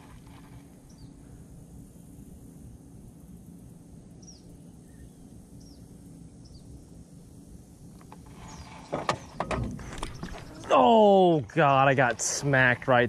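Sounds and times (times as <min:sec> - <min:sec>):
steady low rumble: 0:00.0 - 0:13.0
bird chirps: 0:04.2 - 0:06.7
sharp clicks and knocks: 0:08.9 - 0:10.4.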